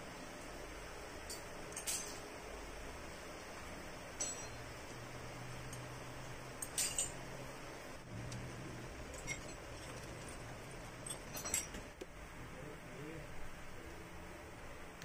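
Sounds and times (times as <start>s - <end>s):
faint low hum: 0.0s - 15.0s
metallic clinks of tools: 1.2s - 2.3s, 4.1s - 4.8s, 6.6s - 7.2s, 9.1s - 11.9s.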